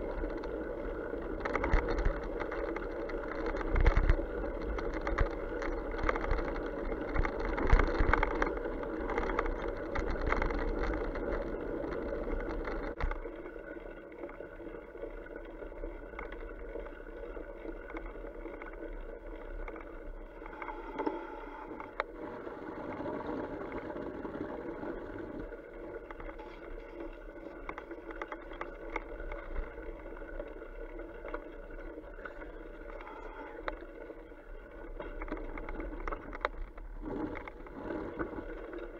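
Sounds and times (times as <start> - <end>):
bike rattling over ruts: 1.3 - 13.1.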